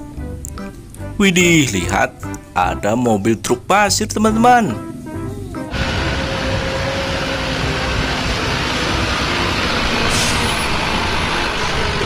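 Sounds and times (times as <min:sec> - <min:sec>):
dump truck engine running: 0:05.1 - 0:12.0.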